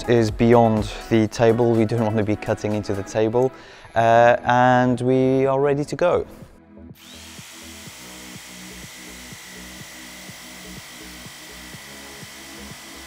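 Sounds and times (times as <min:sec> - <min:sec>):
background music with beat: 0:00.0 - 0:03.6
jigsaw cutting plastic sheet: 0:07.0 - 0:13.0.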